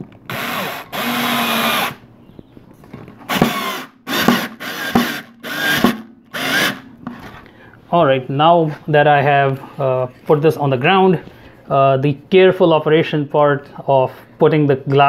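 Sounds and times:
cordless drill driving a screw: 0:00.3 - 0:02.0, 0:03.3 - 0:06.8.

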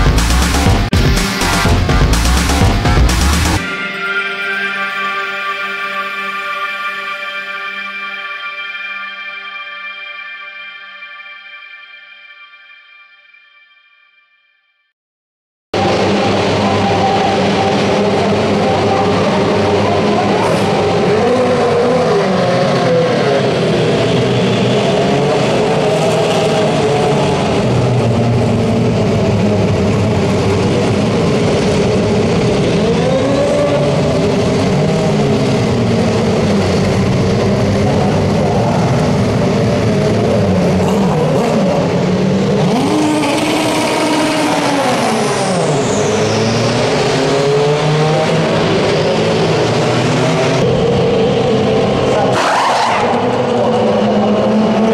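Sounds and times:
race car accelerating away: 0:15.8 - 0:54.9
race car engines with throttle blips: 0:15.8 - 0:54.9.

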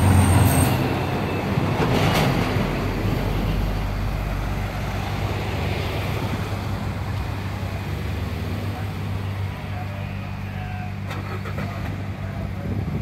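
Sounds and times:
engine hum and road noise: 0:00.0 - 0:13.0
truck passing close: 0:00.0 - 0:13.0.

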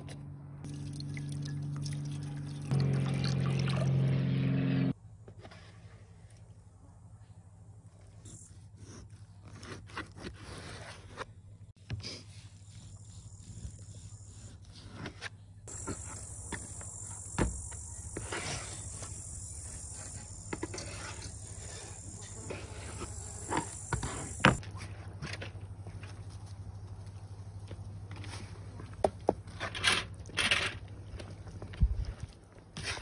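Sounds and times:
steady high buzz: 0:15.7 - 0:24.6.

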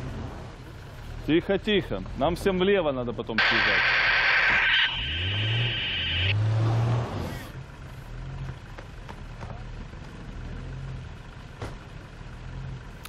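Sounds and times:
high steady whine: 0:03.4 - 0:06.5
vehicle engine revving: 0:03.4 - 0:08.7.

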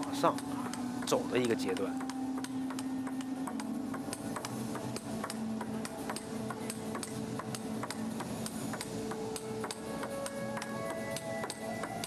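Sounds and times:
arena music: 0:00.0 - 0:12.0
table tennis ball clicking: 0:00.0 - 0:12.0.

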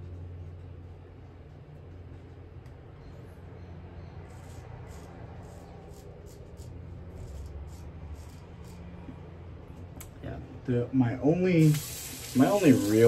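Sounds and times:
razor scraping stubble: 0:04.2 - 0:09.1.

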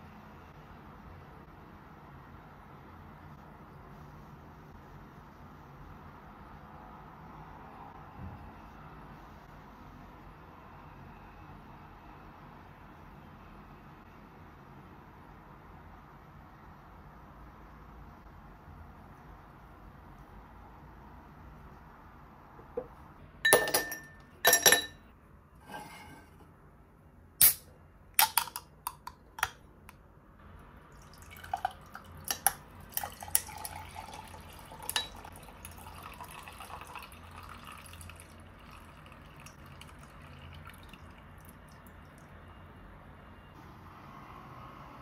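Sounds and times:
ice cubes clinking in glass: 0:23.5 - 0:25.0, 0:31.4 - 0:35.3
carbonated drink pouring and fizzing: 0:30.9 - 0:42.3.

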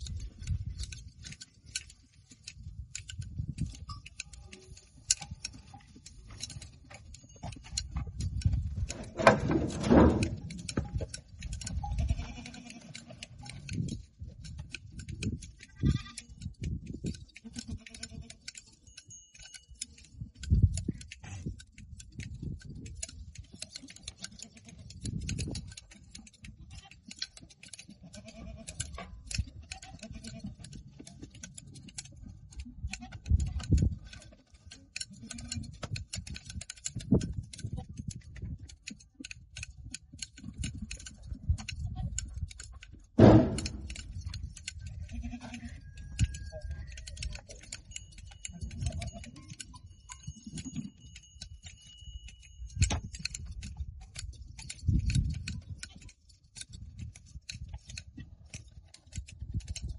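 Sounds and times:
shears clicking: 0:00.0 - 0:59.9
goats bleating: 0:11.8 - 0:13.2, 0:15.6 - 0:16.4, 0:17.4 - 0:18.5, 0:28.0 - 0:28.8, 0:29.6 - 0:30.6, 0:45.0 - 0:45.8
low bumps: 0:43.2 - 0:44.0.

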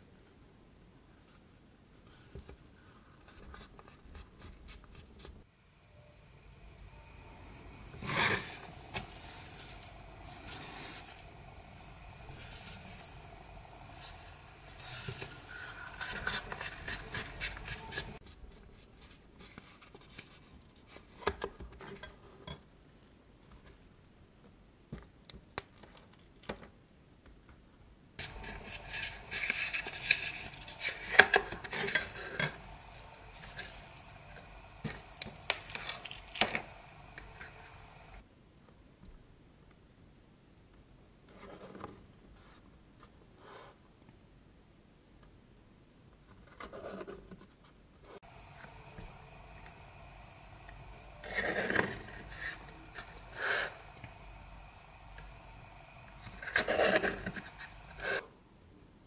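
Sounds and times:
plastic set square scraping: 0:12.3 - 0:18.2, 0:28.2 - 0:38.2, 0:51.2 - 0:54.2, 0:56.2 - 0:58.2.

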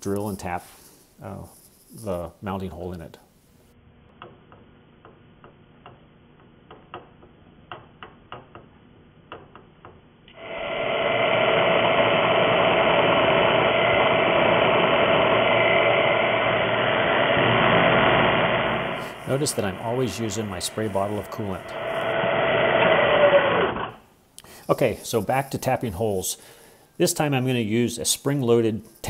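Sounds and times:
milling machine drilling metal: 0:10.4 - 0:23.9.

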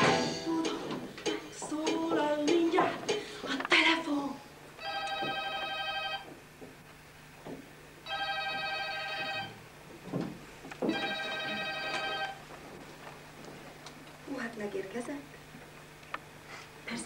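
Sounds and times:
telephone ringing: 0:04.8 - 0:06.3, 0:08.0 - 0:09.6, 0:10.9 - 0:12.4.

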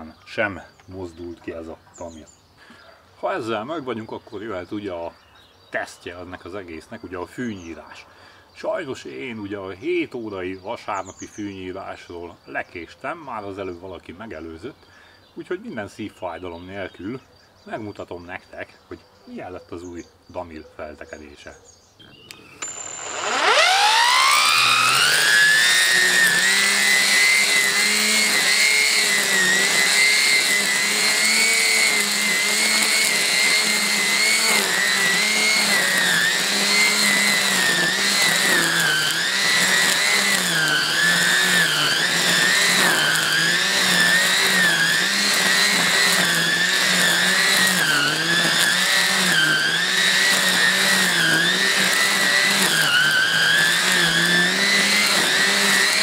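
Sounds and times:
string trimmer motor whining: 0:22.1 - 0:56.0
trimmer line cutting grass: 0:22.2 - 0:56.0.

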